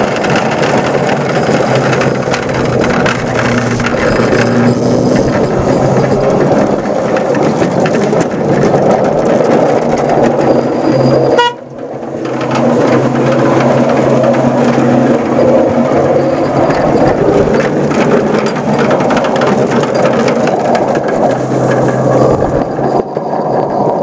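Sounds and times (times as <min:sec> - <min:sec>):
model locomotive motor hum: 0:00.0 - 0:10.5
wheels rumbling on rail: 0:00.0 - 0:24.0.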